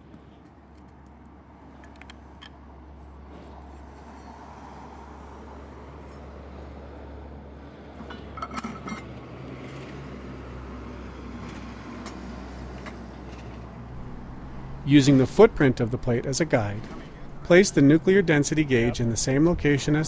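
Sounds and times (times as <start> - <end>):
steady low rumble: 14.0 - 20.0.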